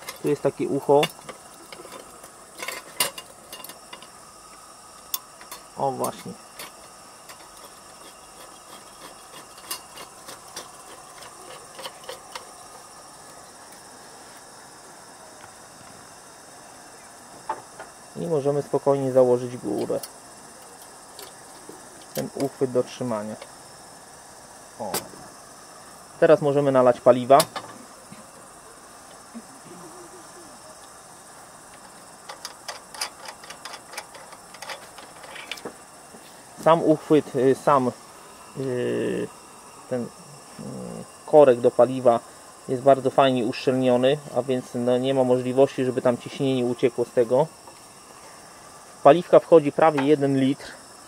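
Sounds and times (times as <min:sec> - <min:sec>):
lantern parts clicking: 0:00.0 - 0:13.8, 0:31.7 - 0:35.8
insects chirring: 0:00.0 - 0:51.0.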